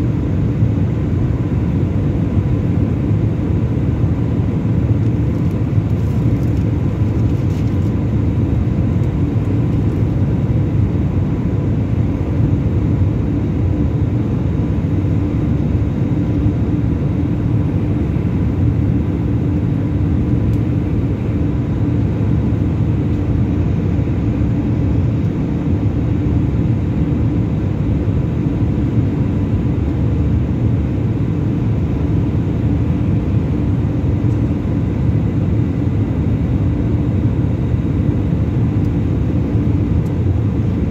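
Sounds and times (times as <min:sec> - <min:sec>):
airliner engine rumble in cabin: 0:00.0 - 0:40.9
faint constant hum: 0:00.0 - 0:40.9.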